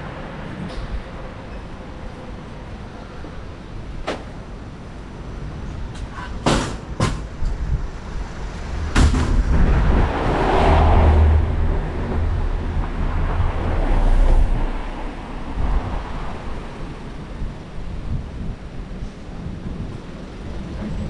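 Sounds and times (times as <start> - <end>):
vehicle passing by: 8.1 - 17.0.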